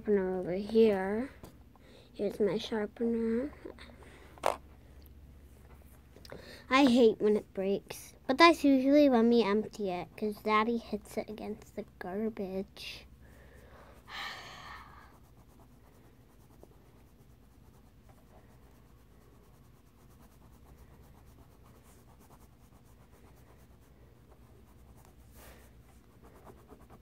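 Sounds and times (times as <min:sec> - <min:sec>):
coloured pencil scratching: 0:14.8 - 0:27.0.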